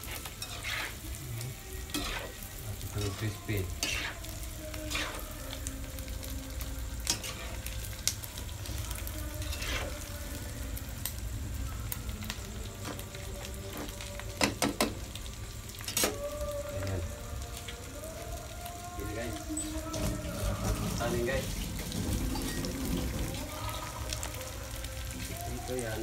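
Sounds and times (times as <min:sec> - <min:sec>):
spatula scraping a wok: 0:00.0 - 0:01.2, 0:01.8 - 0:05.4, 0:07.0 - 0:07.8, 0:09.3 - 0:10.1
meat sizzling in hot oil: 0:00.0 - 0:26.0.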